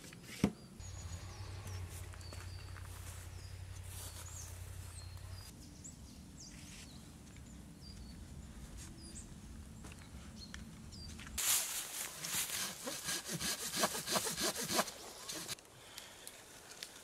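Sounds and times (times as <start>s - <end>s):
small birds chirping: 0.3s - 11.4s
low outdoor rumble: 0.8s - 11.4s.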